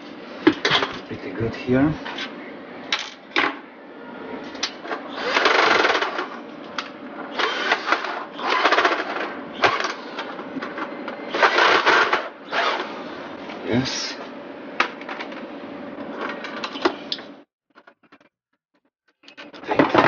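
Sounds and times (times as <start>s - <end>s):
cordless drill whirring: 5.2s - 6.0s, 7.3s - 9.0s, 11.3s - 13.0s.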